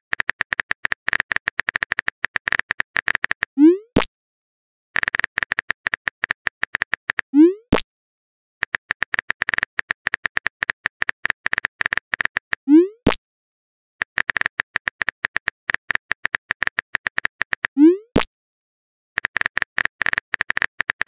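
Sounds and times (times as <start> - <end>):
phone keyboard clicks: 0.1 - 3.6, 5.0 - 7.3, 8.6 - 12.6, 14.0 - 18.3, 19.2 - 21.0.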